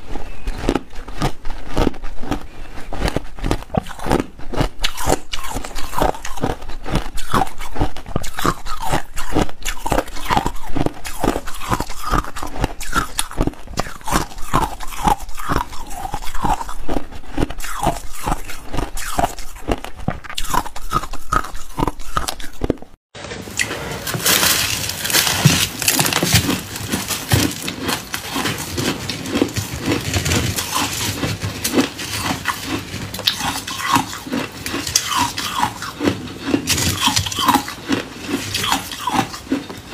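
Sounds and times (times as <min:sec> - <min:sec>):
ice being chewed: 0:00.0 - 0:39.9
shaved ice crunching: 0:23.5 - 0:39.6.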